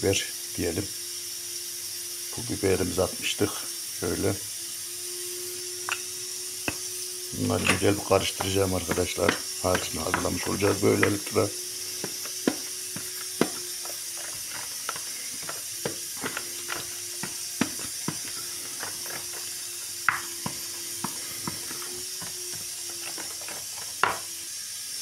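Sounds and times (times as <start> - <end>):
steady hiss: 0.0 - 25.0
spoon tapping plastic bowl: 7.6 - 19.5, 20.1 - 24.2.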